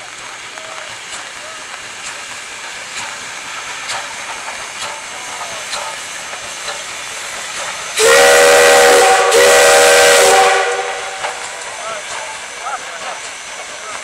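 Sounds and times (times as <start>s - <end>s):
steam locomotive whistle: 8.0s - 11.5s.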